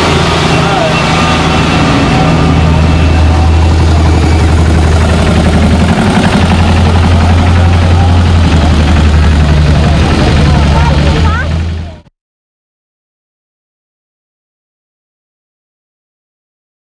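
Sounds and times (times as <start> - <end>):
diesel tractor engine droning: 0.0 - 12.1.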